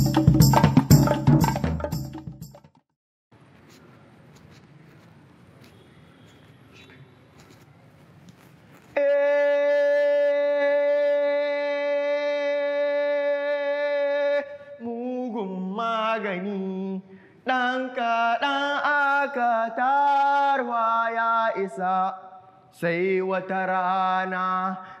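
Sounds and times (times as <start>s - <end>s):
man chanting: 9.0s - 24.9s.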